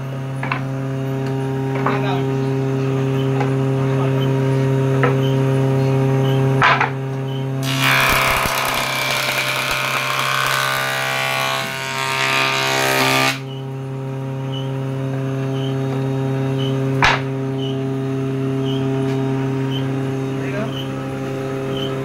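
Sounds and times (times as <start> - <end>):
machine humming: 7.2 - 22.0
jointer planing wood: 7.6 - 13.6.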